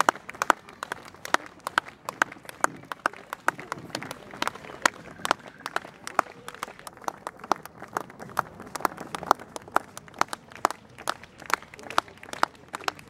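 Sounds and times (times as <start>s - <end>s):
spectators clapping in time: 0.0s - 13.0s.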